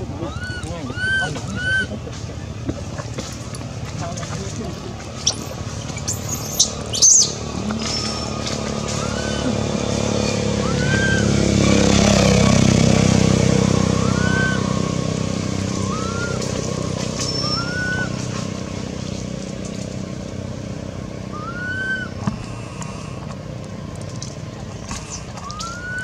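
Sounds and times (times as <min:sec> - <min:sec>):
vehicle engine passing by: 0:00.0 - 0:26.0
bird call: 0:05.2 - 0:11.4, 0:13.8 - 0:15.0, 0:15.7 - 0:18.5, 0:21.3 - 0:23.3, 0:24.7 - 0:26.0.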